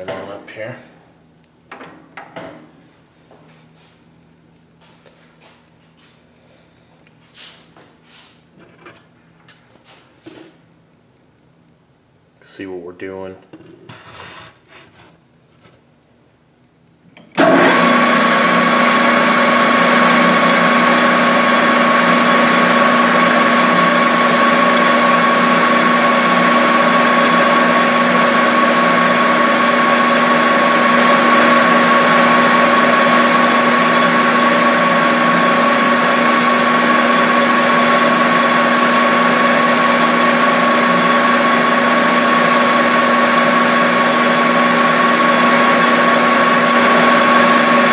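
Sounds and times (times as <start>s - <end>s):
metal lathe whining: 19.5s - 47.9s.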